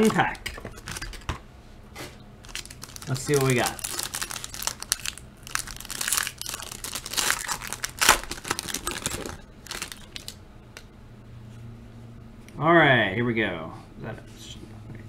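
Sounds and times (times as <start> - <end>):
foil pack crinkling: 0.6 - 1.3, 2.4 - 10.4.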